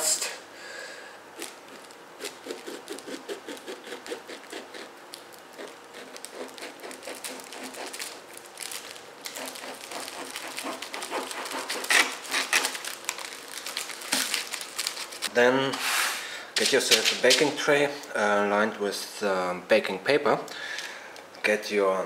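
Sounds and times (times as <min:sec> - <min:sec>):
knife sawing through bread crust: 0:01.4 - 0:04.9, 0:05.5 - 0:08.2, 0:09.3 - 0:12.7
bread crust crackling: 0:01.4 - 0:15.3.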